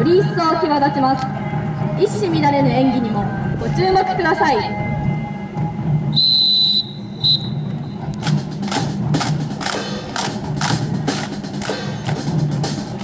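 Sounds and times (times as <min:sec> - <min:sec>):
quiet band music: 0:00.0 - 0:13.0
rifles clacking and slapping: 0:08.2 - 0:12.3.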